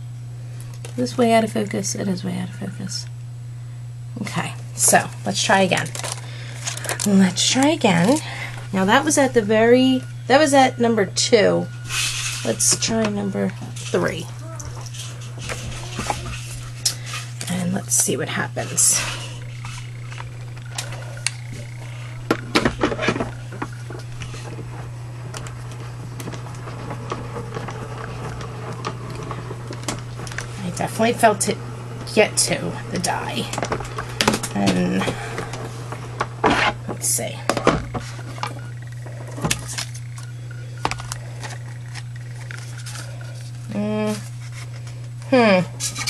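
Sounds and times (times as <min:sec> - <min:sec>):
low hum: 0:00.0 - 0:46.0.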